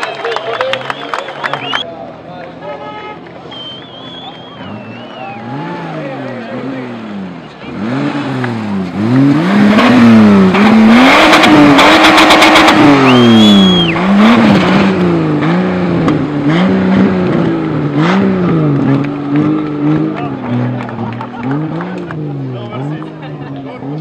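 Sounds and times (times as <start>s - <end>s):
car engine revving: 3.2s - 24.0s
tyre squeal: 13.0s - 14.0s.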